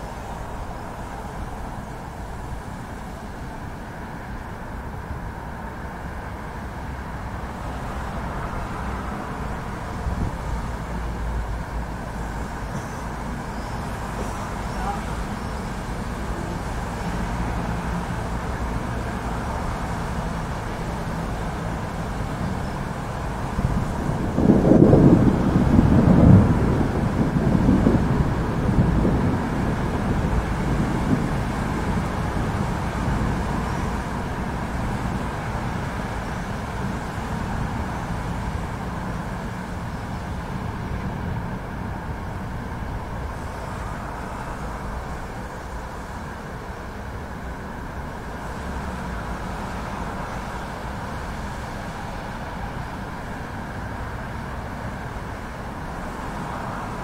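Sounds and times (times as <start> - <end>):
city traffic rumble: 0.0 - 57.0
faint engine hum: 0.0 - 57.0
low thunder rumbling: 23.5 - 35.0.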